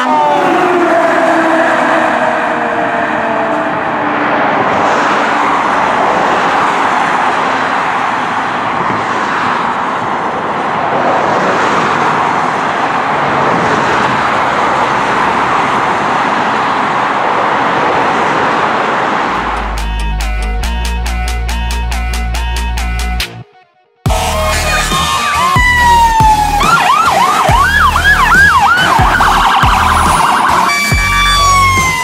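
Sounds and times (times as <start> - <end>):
distant fire truck siren: 0.0 - 9.0, 23.4 - 32.0
cars passing on road: 0.0 - 23.4, 24.1 - 32.0.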